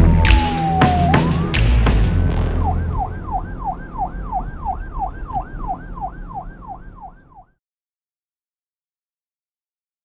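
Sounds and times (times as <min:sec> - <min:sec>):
steady low rumble: 0:00.0 - 0:07.2
siren yelping: 0:00.0 - 0:07.6.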